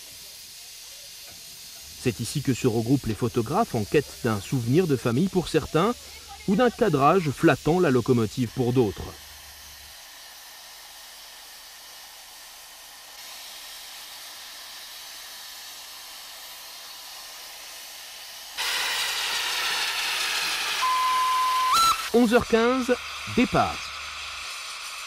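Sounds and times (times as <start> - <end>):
steam hissing: 0.0 - 25.0
steam whistle: 18.6 - 25.0.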